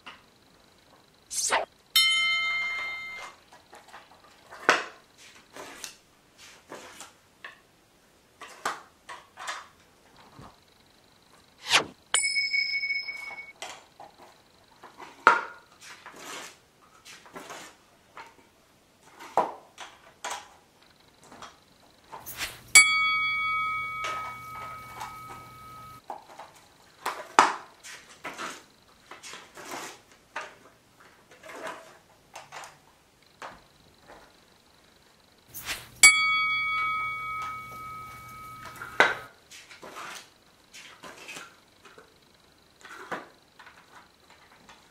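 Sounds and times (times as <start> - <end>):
electronic chimes from small speaker: 2.0 - 3.4, 22.4 - 26.0, 35.6 - 39.3.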